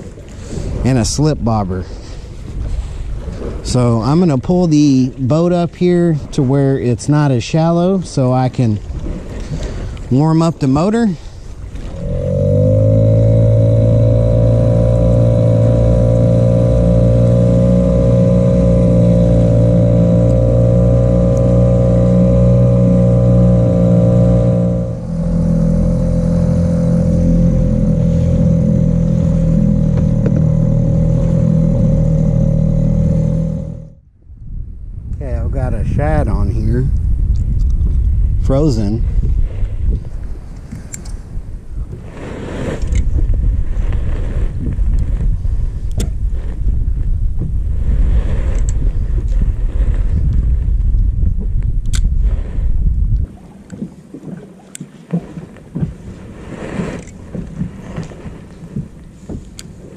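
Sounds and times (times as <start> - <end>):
wind buffeting microphone: 0.0 - 59.9
outboard motor running: 8.4 - 34.1, 42.8 - 59.9.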